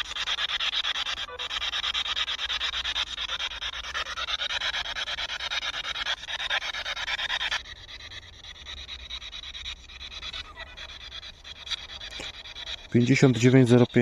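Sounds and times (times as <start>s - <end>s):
steady low hum: 0.0s - 14.0s
fluttering radio static: 5.1s - 14.0s.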